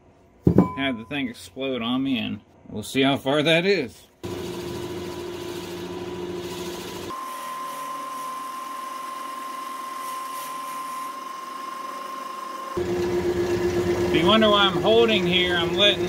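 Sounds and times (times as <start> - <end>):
wood lathe motor hum: 4.2 - 16.0
drill bit whine: 4.3 - 16.0.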